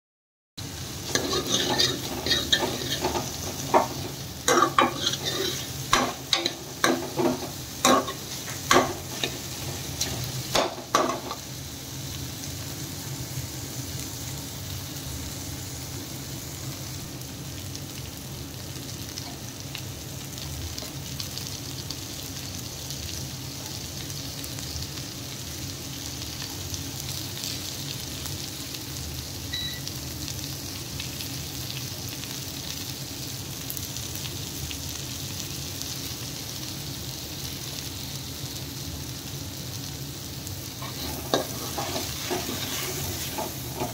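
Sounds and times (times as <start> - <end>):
vegetables sizzling in oil: 0.6 - 43.9
ladle scraping a pan: 1.1 - 11.4, 40.8 - 43.9.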